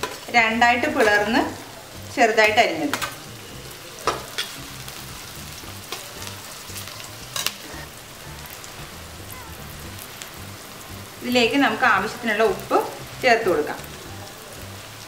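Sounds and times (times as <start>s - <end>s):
vegetables sizzling in hot oil: 0.0s - 15.0s
metal spatula scraping pan: 6.8s - 7.9s.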